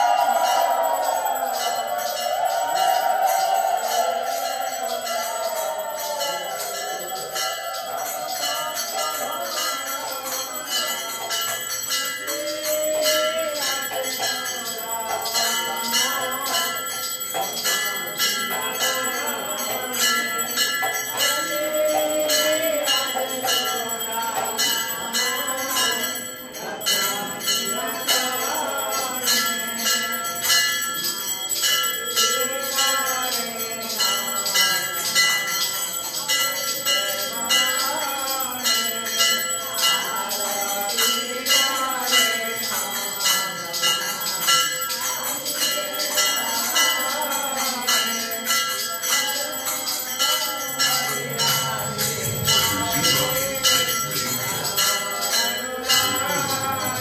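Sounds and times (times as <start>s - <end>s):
brass hand bell ringing rapidly: 0.0s - 57.0s.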